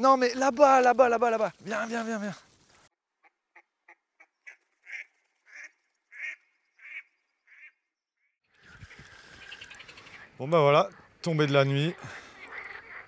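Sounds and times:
ducks quacking: 3.2s - 7.8s, 8.7s - 13.0s.

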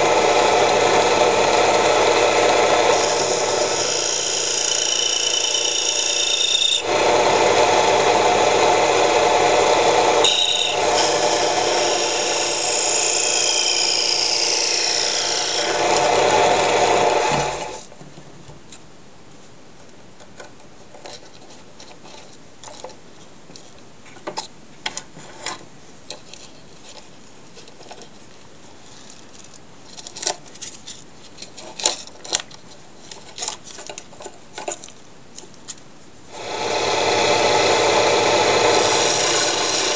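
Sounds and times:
lathe tool scraping wood: 0.0s - 17.8s, 36.3s - 39.9s.

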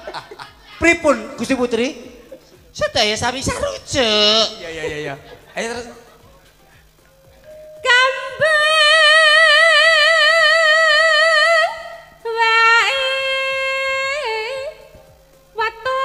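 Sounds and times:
woman singing unaccompanied: 7.8s - 16.0s.

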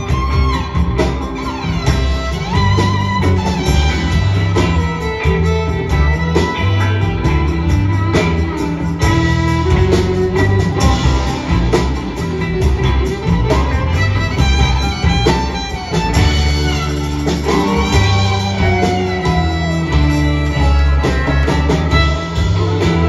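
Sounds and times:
drum kit beat: 0.0s - 23.0s
electric guitar: 0.0s - 23.0s
fiddle: 0.0s - 23.0s
upright bass: 0.0s - 23.0s.

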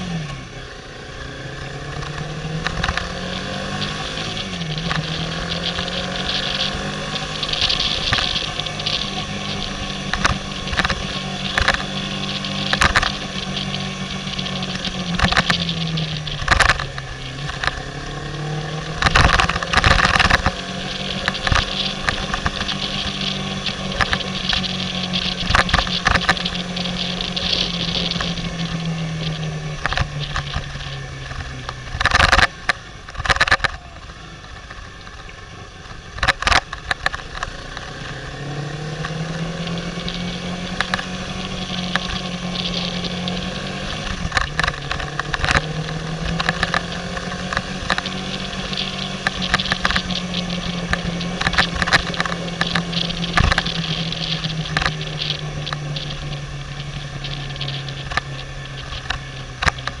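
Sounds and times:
motorcycle engine running: 0.0s - 60.0s.

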